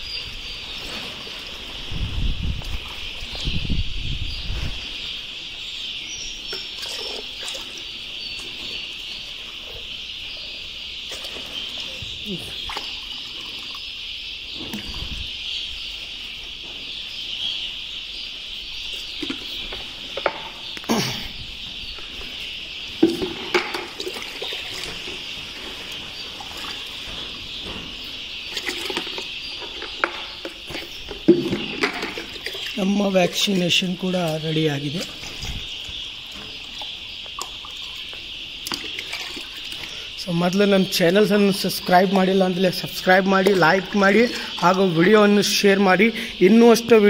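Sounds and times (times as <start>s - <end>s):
plastic drinkers knocking: 23.0s - 24.9s, 28.6s - 32.6s.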